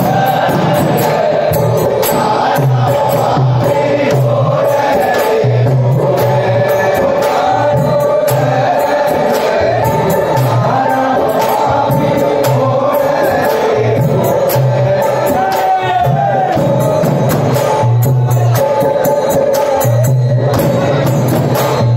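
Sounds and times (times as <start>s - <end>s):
person singing into microphone: 0.0s - 21.1s
hand-played barrel drum: 0.0s - 21.9s
jingling hand percussion: 0.0s - 21.9s.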